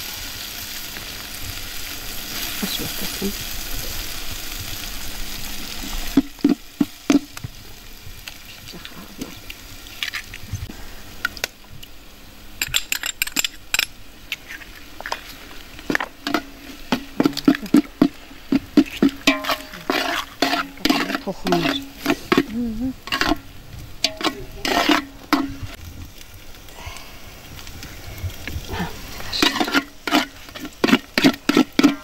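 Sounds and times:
metal spoon stirring in metal pot: 0:12.6 - 0:25.8, 0:29.1 - 0:32.0.

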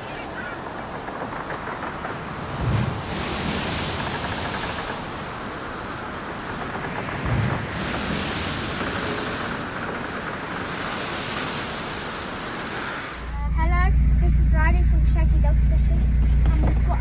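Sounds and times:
wind buffeting microphone: 0:00.0 - 0:13.3
surf rushing: 0:00.0 - 0:13.4.

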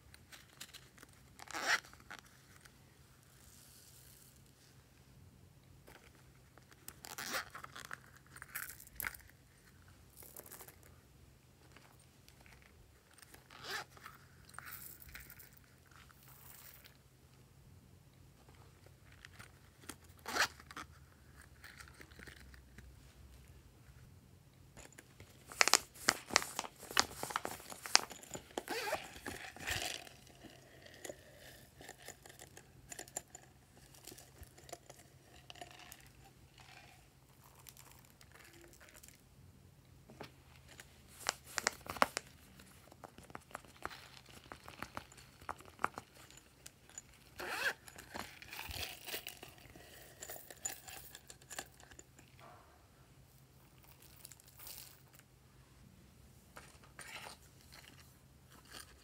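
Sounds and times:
plastic toppings crinkling: 0:24.8 - 0:39.2, 0:40.7 - 0:52.3.

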